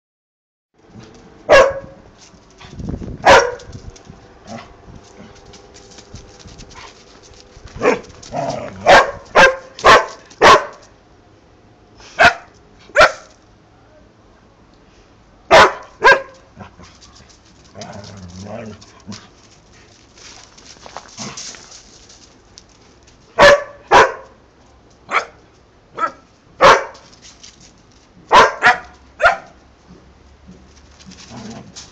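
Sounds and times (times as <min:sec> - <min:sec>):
dogs barking: 0:01.5 - 0:02.0, 0:03.2 - 0:03.7, 0:07.8 - 0:10.9, 0:12.2 - 0:13.3, 0:15.5 - 0:16.4, 0:23.4 - 0:24.4, 0:26.0 - 0:27.0, 0:28.3 - 0:29.6.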